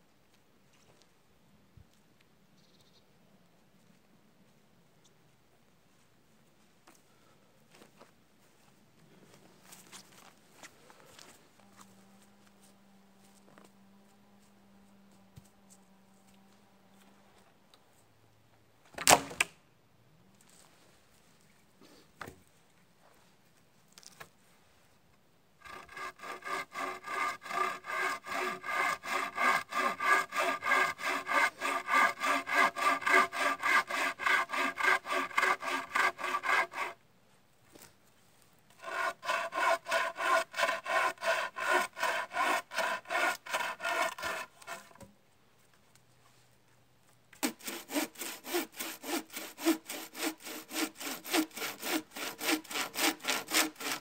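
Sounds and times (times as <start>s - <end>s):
bow saw cutting wood: 25.6s - 37.0s, 38.8s - 45.1s, 47.4s - 54.0s.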